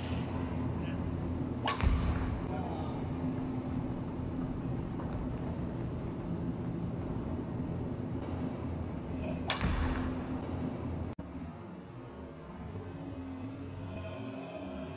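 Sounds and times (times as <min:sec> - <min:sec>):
background hum: 0:00.0 - 0:14.9
racket striking shuttlecock: 0:01.6 - 0:02.3, 0:09.4 - 0:10.1.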